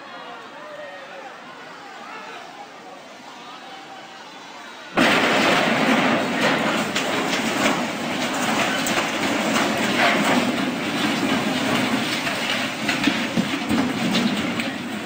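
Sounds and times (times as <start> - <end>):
debris knocking and cracking: 5.0 - 15.0.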